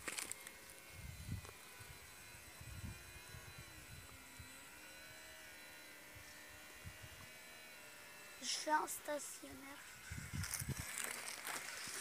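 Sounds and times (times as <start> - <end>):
model airplane motor whining: 0.0 - 12.0
wind rumble on microphone: 0.9 - 4.2, 9.9 - 11.0.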